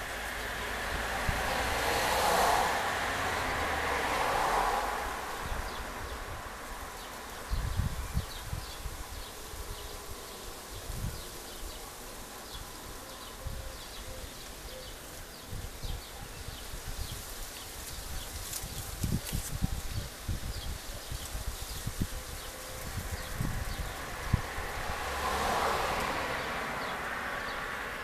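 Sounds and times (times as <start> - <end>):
passing vehicle: 0.0 - 20.4, 21.4 - 28.0
small birds chirping: 5.4 - 24.8.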